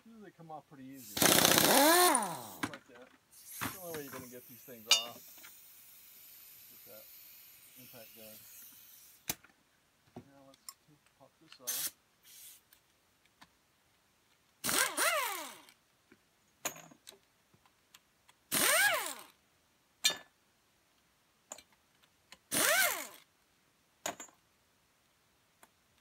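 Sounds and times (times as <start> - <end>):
impact wrench whining: 1.0 - 2.7, 14.6 - 15.7, 18.5 - 19.3, 22.5 - 23.2.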